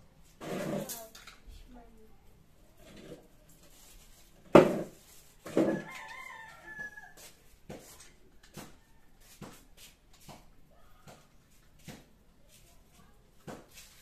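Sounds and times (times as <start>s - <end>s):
rooster crowing: 5.6s - 7.4s.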